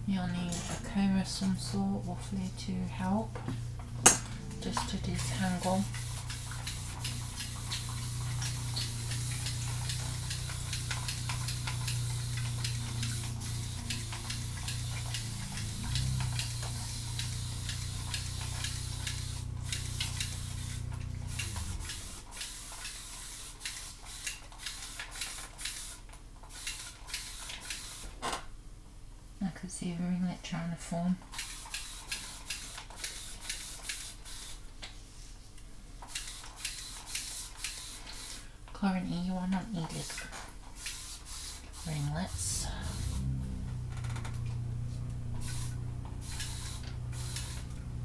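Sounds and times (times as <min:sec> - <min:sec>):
steady low hum: 0:00.0 - 0:22.3, 0:41.7 - 0:48.0
squeeze bottle squirting: 0:05.7 - 0:25.9.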